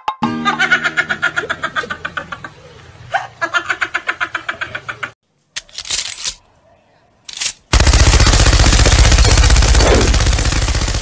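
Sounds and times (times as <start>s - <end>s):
machine gun firing: 7.7s - 11.0s.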